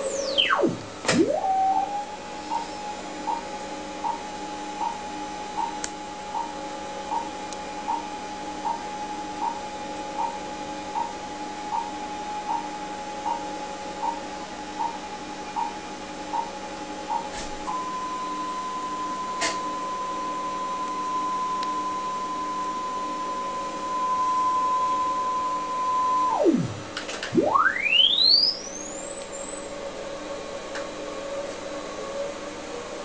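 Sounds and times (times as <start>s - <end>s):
tone sweeping up to high whistle: 0.0s - 2.3s, 23.9s - 29.2s
tape line-up tone: 0.0s - 5.0s, 20.3s - 29.0s.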